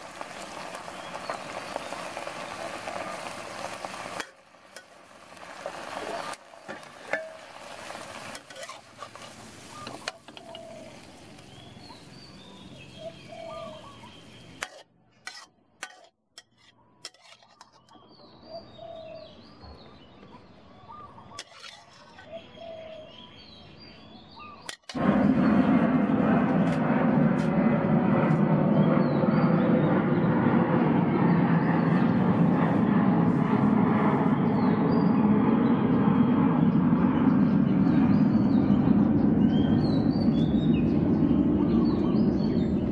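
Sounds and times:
vegetables sizzling in a wok: 0.0 - 12.1
birds chirping: 0.2 - 4.0, 8.3 - 14.8, 16.8 - 25.7, 36.6 - 42.9
metal spatula on wok: 4.1 - 10.9, 14.6 - 17.9, 21.4 - 22.3.

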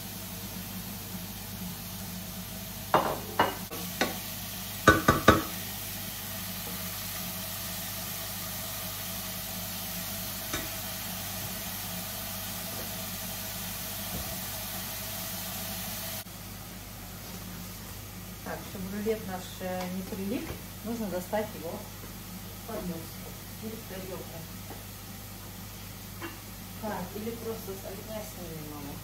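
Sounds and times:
mushrooms sizzling in a pan: 0.0 - 29.0
range hood fan hum: 0.0 - 29.0
utensil knocking against pan: 4.8 - 5.6.

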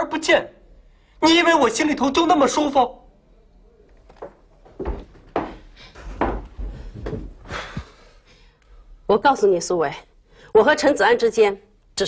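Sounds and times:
dull knocks and thumps: 4.2 - 7.4.

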